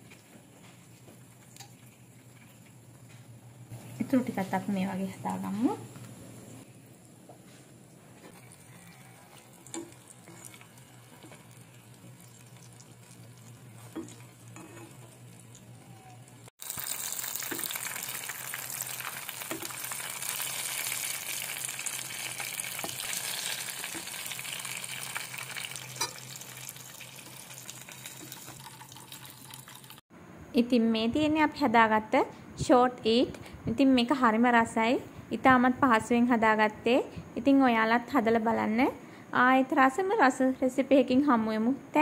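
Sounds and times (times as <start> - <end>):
pastries deep-frying in oil: 6.6 - 30.0.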